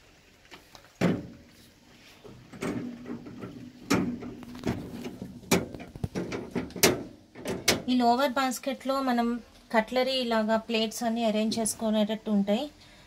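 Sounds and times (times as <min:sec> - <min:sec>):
dishwasher rack rattling: 0:02.4 - 0:07.9.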